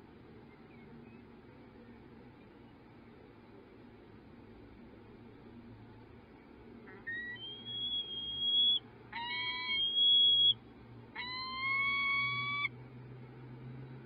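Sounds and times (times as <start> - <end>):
falcon calling: 6.9 - 10.6, 11.2 - 12.8.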